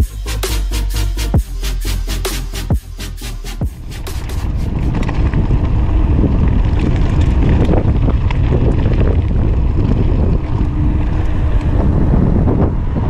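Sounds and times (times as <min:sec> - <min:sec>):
wind buffeting microphone: 0:03.6 - 0:13.0
bike tyres clicking on stones: 0:03.7 - 0:12.3.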